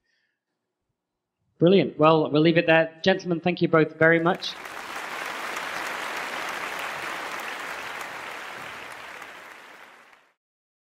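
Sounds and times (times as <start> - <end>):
audience applauding: 4.1 - 10.4.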